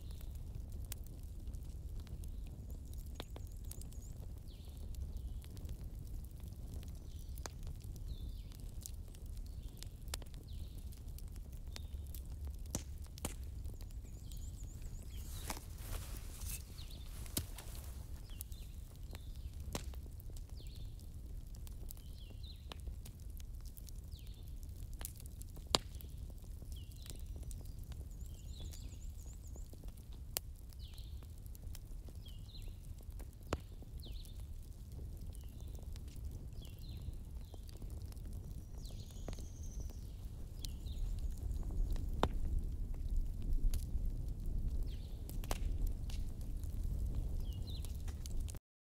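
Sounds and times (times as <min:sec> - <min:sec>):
small birds chirping: 0:02.1 - 0:05.6, 0:06.7 - 0:22.8, 0:24.0 - 0:24.6, 0:25.8 - 0:30.0, 0:30.7 - 0:31.4, 0:32.1 - 0:34.6, 0:35.2 - 0:42.1, 0:47.2 - 0:48.4
zebras cropping grass: 0:14.8 - 0:18.4.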